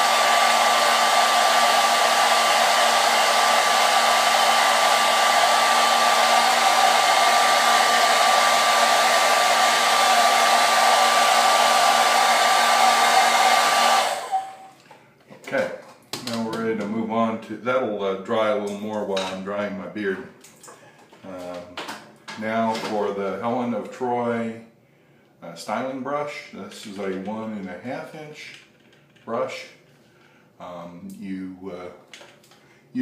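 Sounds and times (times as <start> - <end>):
hair dryer running: 0.0 - 14.8.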